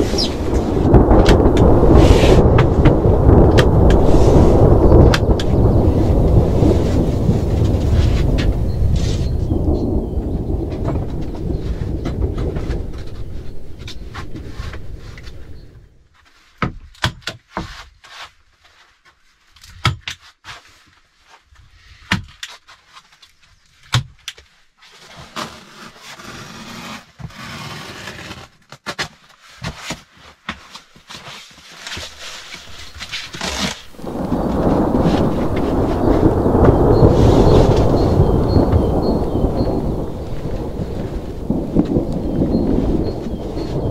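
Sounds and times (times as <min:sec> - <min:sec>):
thunder rumble: 0:00.0 - 0:16.0, 0:32.5 - 0:43.9
mats scraping and rustling: 0:00.0 - 0:16.7, 0:17.4 - 0:43.9
knocks and clicks on wood: 0:16.6 - 0:17.7.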